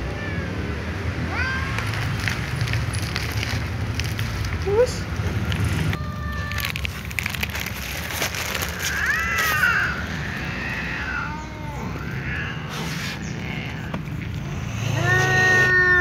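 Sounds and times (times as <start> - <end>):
cat meowing: 1.3 - 1.9, 8.5 - 16.0.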